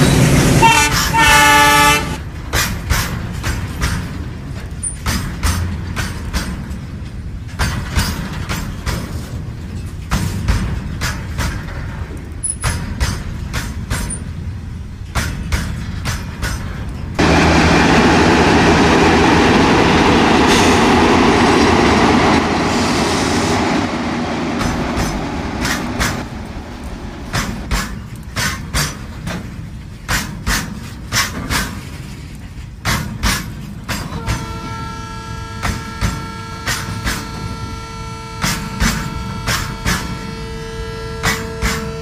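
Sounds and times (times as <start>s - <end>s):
wheels clicking over rail joints: 0.0s - 17.3s, 24.6s - 40.4s
model train rumble: 0.0s - 42.0s.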